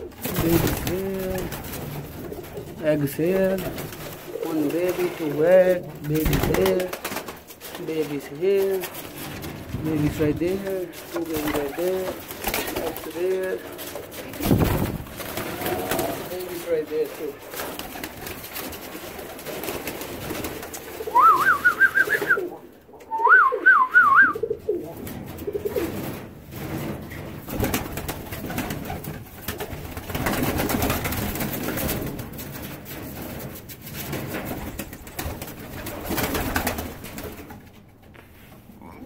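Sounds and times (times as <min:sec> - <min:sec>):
pigeons cooing: 0:15.2 - 0:18.2, 0:20.6 - 0:26.2.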